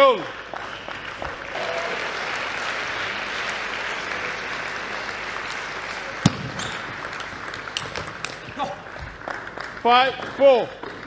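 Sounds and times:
spectators applauding: 0.0s - 11.0s
table tennis ball click: 6.3s - 8.6s.

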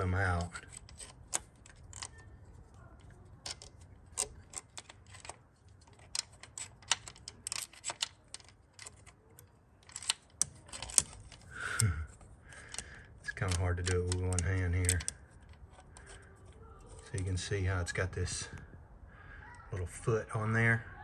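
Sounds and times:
metal clicking and clinking: 0.0s - 11.5s, 12.1s - 17.3s.

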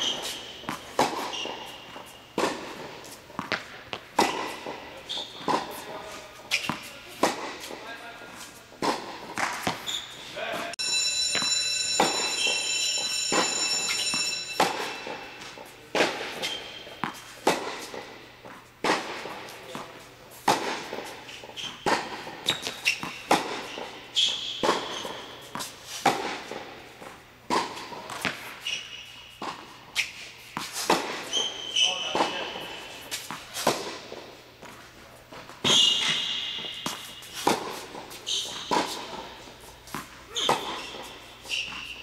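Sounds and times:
tennis ball hit by racket: 0.0s - 7.8s, 8.5s - 9.9s, 15.4s - 21.1s, 21.8s - 23.9s, 24.6s - 28.6s, 29.4s - 31.4s, 32.1s - 34.7s, 35.6s - 39.3s, 39.9s - 41.9s.

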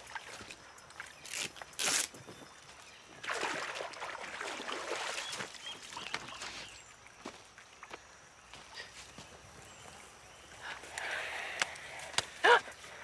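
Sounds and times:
cloth splashing in water: 3.2s - 6.3s.

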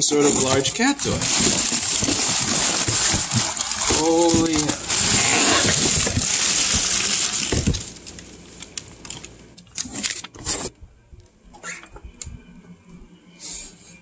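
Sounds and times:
packaging rustling: 0.0s - 10.7s
packaging tearing and crinkling: 0.0s - 10.7s.

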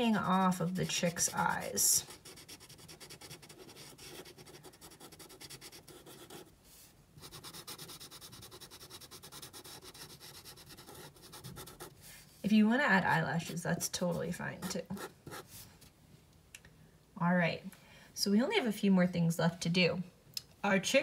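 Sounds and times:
marker scribbling on paper: 0.3s - 6.5s, 7.2s - 11.9s, 13.4s - 15.5s.

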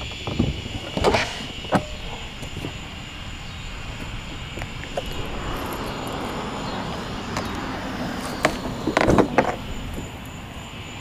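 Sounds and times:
wind buffeting microphone: 2.0s - 10.6s
steady low rumble: 2.8s - 10.0s.

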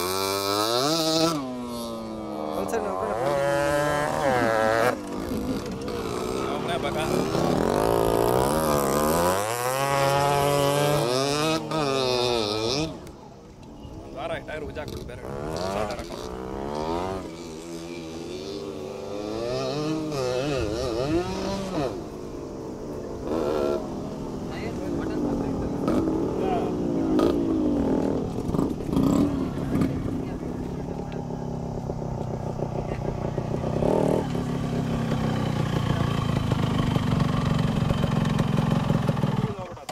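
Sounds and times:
motorcycle engine revving: 0.0s - 39.9s
motorcycle engine idling: 22.0s - 39.9s.

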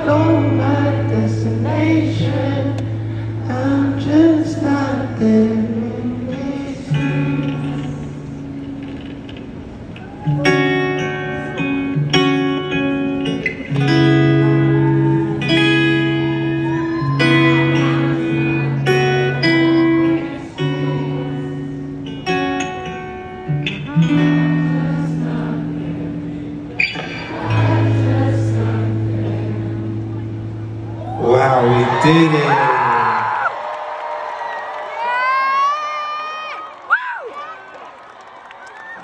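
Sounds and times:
guitar chords through sound system: 0.0s - 32.6s.

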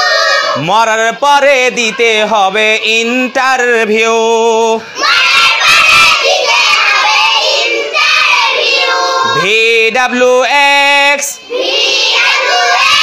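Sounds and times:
children chanting in unison: 0.0s - 0.7s, 4.8s - 9.5s, 11.4s - 13.0s.

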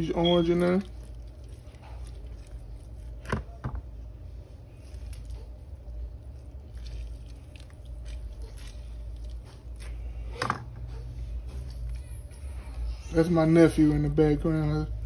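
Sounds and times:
steady low hum: 0.0s - 15.0s
wet squishing of squeezed oranges: 0.0s - 15.0s.

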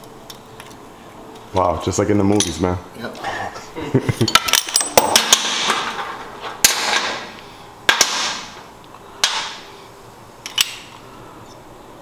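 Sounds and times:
bolt cutter snapping metal rods: 10.4s - 10.9s.

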